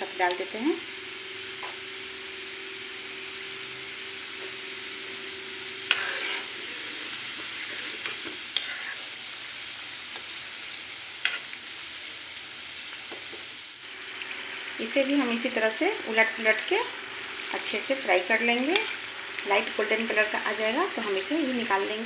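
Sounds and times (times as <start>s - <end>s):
oil sizzling and bubbling: 0.0s - 22.0s.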